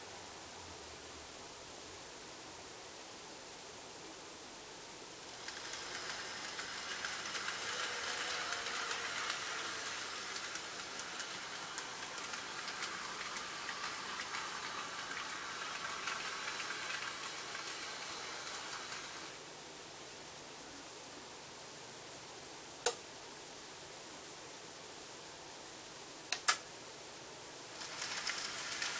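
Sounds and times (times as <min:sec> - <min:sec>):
model train wheels rattling on rail: 0:05.3 - 0:19.5, 0:27.7 - 0:28.9.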